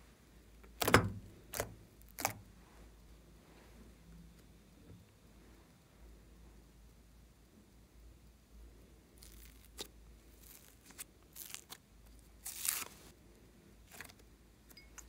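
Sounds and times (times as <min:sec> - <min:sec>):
foam clay crackling and tearing: 0:00.8 - 0:02.5, 0:09.1 - 0:13.2, 0:13.8 - 0:14.2.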